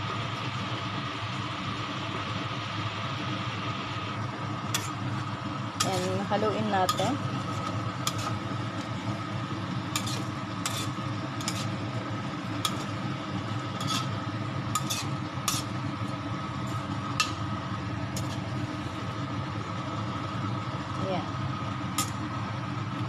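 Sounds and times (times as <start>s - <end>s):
steady hum: 0.0s - 23.0s
spatula scraping and clinking in wok: 4.7s - 5.0s, 5.8s - 8.4s, 9.9s - 11.8s, 12.6s - 15.8s, 18.2s - 18.4s.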